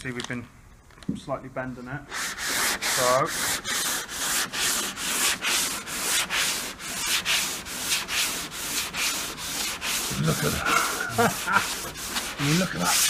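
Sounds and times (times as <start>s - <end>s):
sanding block rasping on filler: 2.1s - 13.0s.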